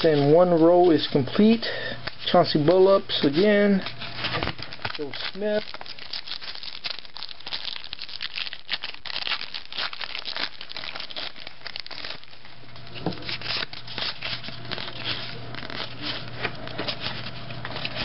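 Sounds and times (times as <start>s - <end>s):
foil wrappers crinkling: 0.0s - 18.0s
foil pack tearing: 3.8s - 18.0s.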